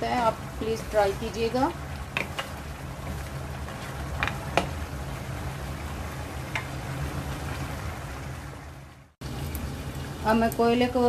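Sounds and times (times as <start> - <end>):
meat sizzling in a wok: 0.0 - 11.0
wooden spatula clicking on pan: 2.1 - 2.6.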